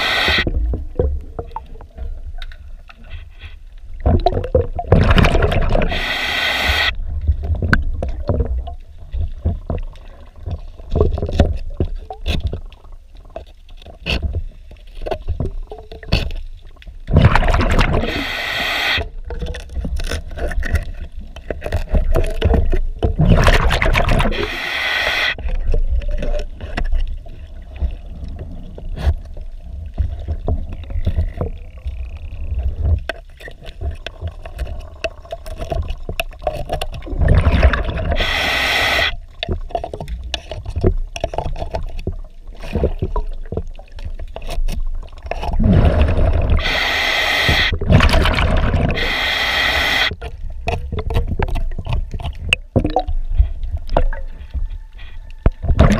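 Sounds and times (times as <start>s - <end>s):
diver's regulator bubbling: 0.0s - 55.9s
hand scraper scraping metal underwater: 32.8s - 55.9s.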